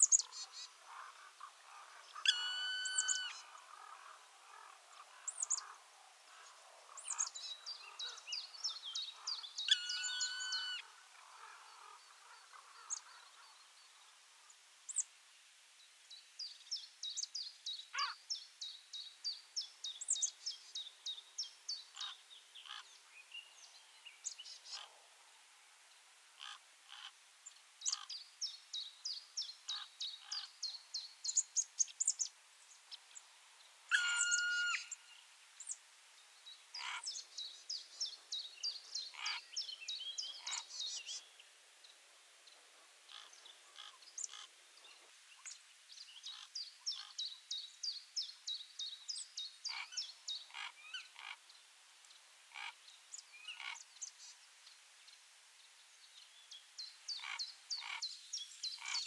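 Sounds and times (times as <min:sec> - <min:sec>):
long level-pitched bird call: 0:02.1 - 0:03.9, 0:09.6 - 0:10.9, 0:33.9 - 0:35.2.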